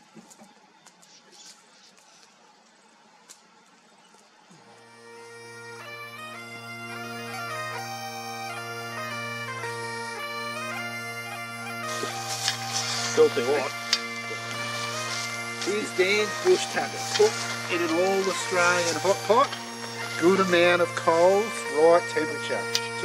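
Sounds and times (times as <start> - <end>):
bagpipe drones: 4.4 - 23.0
bagpipe chanter melody: 4.5 - 23.0
bush ambience: 8.5 - 23.0.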